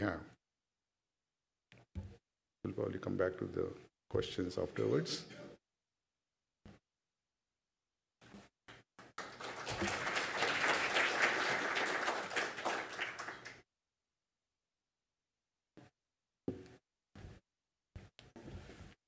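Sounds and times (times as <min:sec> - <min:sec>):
audience applauding: 0:09.1 - 0:13.6.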